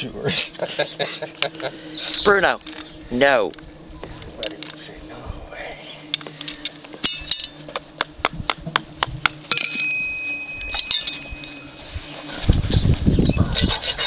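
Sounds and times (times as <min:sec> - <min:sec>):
metal tools clinking: 0:06.4 - 0:07.6, 0:09.5 - 0:11.7.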